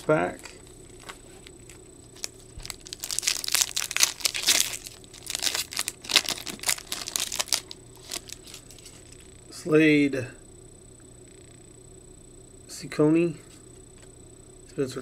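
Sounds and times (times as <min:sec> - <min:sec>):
foil wrapper tearing and crinkling: 0:02.2 - 0:09.1.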